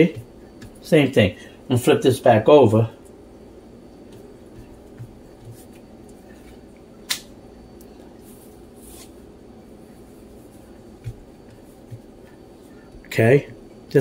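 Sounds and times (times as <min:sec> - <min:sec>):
steady low hum: 0:00.0 - 0:14.0
soft brushing sounds: 0:03.8 - 0:06.8, 0:07.9 - 0:14.0.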